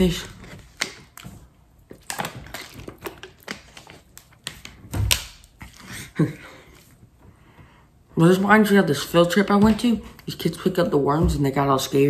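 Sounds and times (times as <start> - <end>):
plastic bottle crackling: 0.0 - 5.9.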